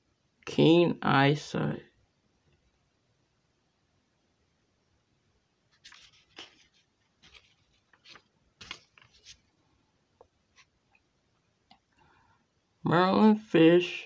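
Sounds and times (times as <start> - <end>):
paper pages rustling: 5.7 - 9.6.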